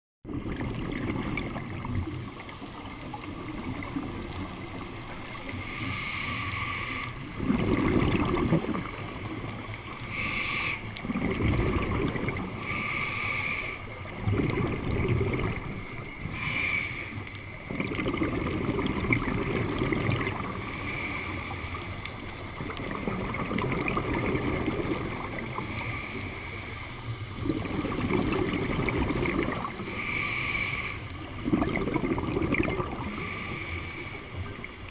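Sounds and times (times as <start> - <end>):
exhaled bubbles rushing: 0.2 - 5.6, 7.2 - 10.0, 10.9 - 12.8, 13.9 - 16.5, 17.5 - 21.0, 22.3 - 26.0, 27.3 - 30.0, 31.2 - 33.3
regulator inhale hiss: 5.2 - 7.4, 8.8 - 11.0, 12.4 - 14.2, 15.6 - 17.6, 20.5 - 22.6, 25.3 - 27.4, 29.6 - 31.4, 32.9 - 34.9.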